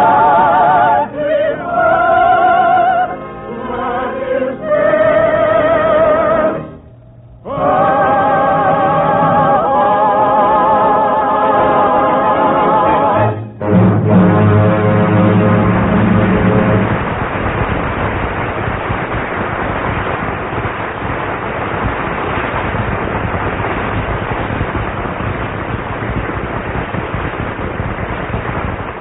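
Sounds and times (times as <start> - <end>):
orchestra final chord: 12.8 - 16.8
audience applauding: 15.5 - 29.0.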